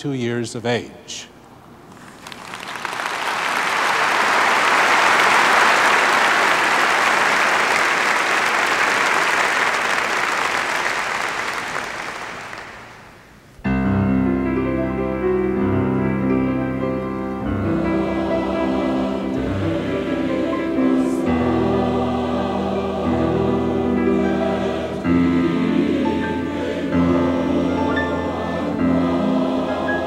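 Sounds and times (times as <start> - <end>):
congregation applauding: 1.9 - 13.3
piano playing: 13.6 - 30.0.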